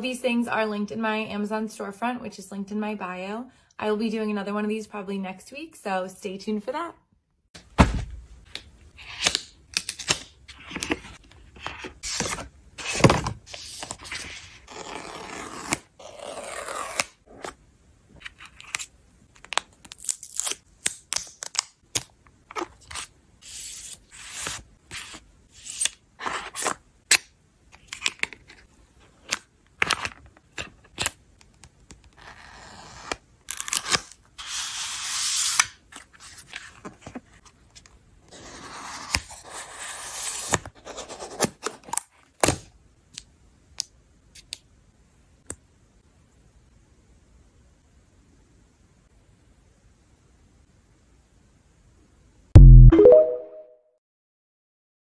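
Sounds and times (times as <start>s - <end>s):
plastic film peeling and tearing: 19.4s - 22.0s, 33.5s - 34.2s.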